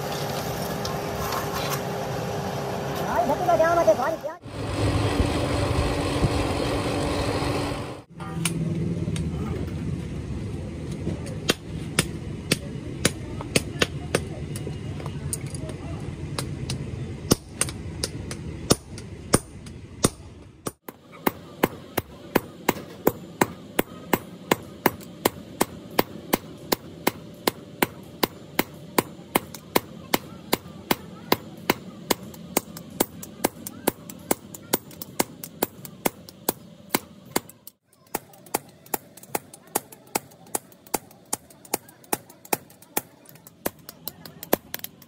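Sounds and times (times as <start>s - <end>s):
sledgehammers striking steel on anvil: 16.4s - 45.0s.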